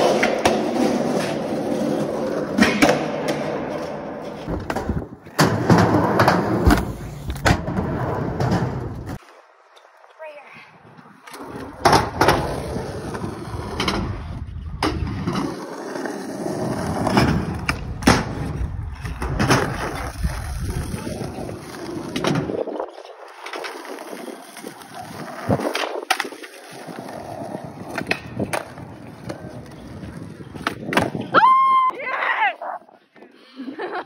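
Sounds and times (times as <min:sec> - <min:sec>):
skateboard popping and landing clacks: 0:00.0 - 0:09.2, 0:11.3 - 0:15.7, 0:23.3 - 0:31.3
skateboard wheels rolling on concrete: 0:00.0 - 0:34.0.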